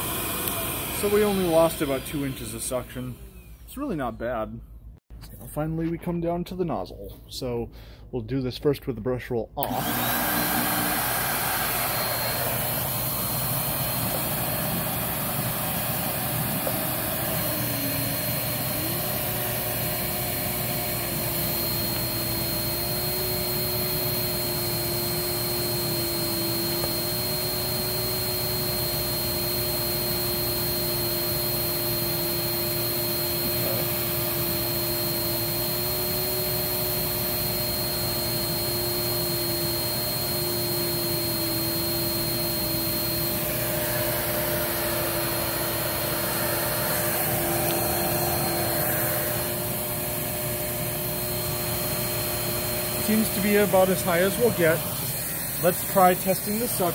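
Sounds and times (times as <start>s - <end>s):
vacuum cleaner motor whining: 0.0s - 3.9s, 9.6s - 56.9s.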